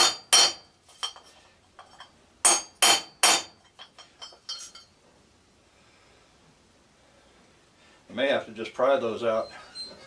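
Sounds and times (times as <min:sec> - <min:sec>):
hammer striking metal punch: 0:00.0 - 0:00.7, 0:02.4 - 0:03.6.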